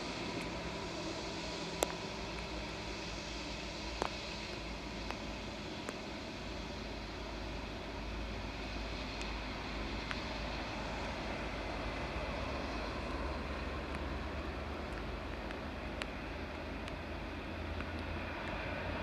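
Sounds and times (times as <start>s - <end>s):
jet engines rumbling and whining: 0.0s - 19.0s
faint ticks: 1.8s - 2.5s, 3.6s - 5.2s, 5.8s - 6.0s, 14.9s - 16.2s.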